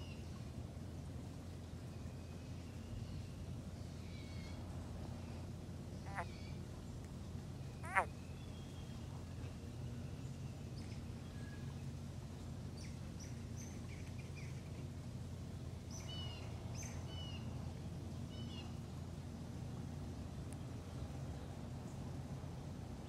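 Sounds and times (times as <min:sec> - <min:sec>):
low background rumble: 0:00.0 - 0:23.0
birds chirping: 0:05.9 - 0:09.1.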